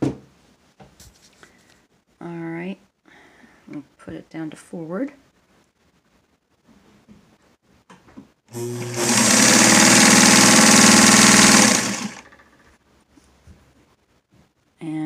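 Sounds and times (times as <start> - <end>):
motor humming: 8.5 - 12.3
sewing machine needle clatter: 8.9 - 12.6.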